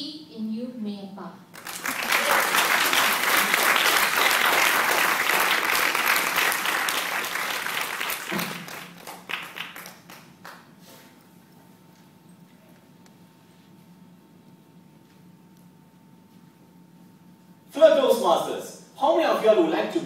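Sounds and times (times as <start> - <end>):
audience applauding: 1.5 - 10.7.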